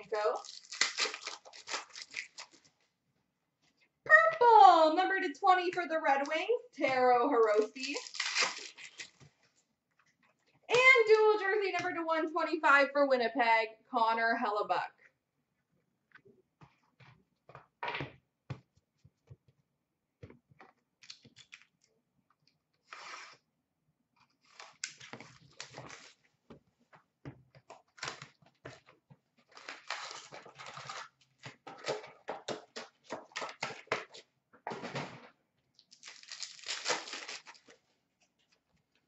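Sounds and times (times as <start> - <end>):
foil wrappers crinkling: 0.1 - 2.7, 7.4 - 9.3, 24.4 - 26.2, 29.4 - 32.1, 35.8 - 37.8.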